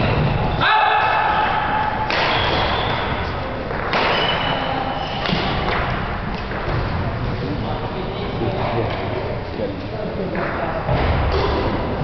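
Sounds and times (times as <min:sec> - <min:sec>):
sports hall noise: 0:00.0 - 0:12.0
racket and feet thuds: 0:02.0 - 0:07.1
shoe squeaks: 0:02.3 - 0:03.4, 0:04.0 - 0:05.7.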